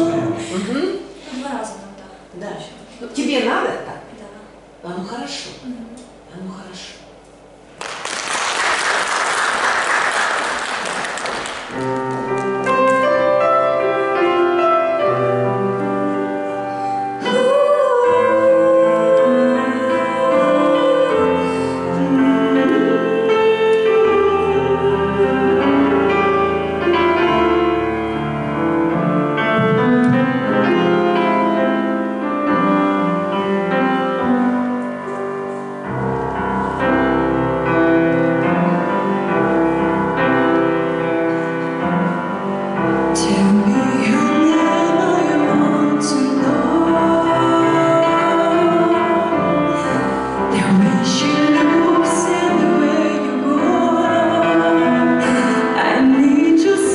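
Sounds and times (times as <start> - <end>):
grand piano: 0.0 - 56.9
applause: 7.8 - 12.2
woman singing: 17.2 - 26.2, 43.2 - 56.9.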